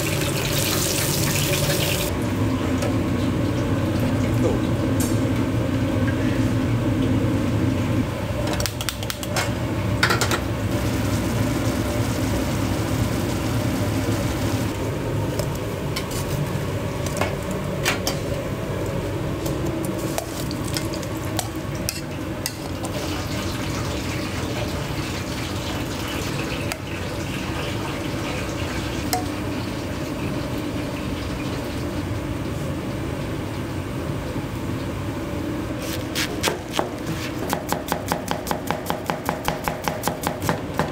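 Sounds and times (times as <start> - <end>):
kitchen background hum: 0.0 - 40.9.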